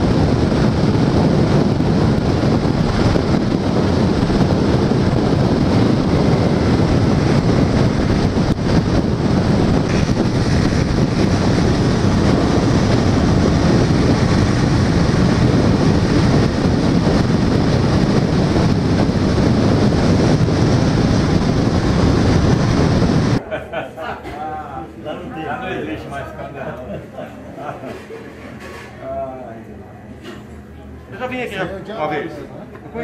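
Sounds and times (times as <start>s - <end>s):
motorcycle engine running: 0.0s - 23.4s
wind rushing over microphone: 0.0s - 23.4s.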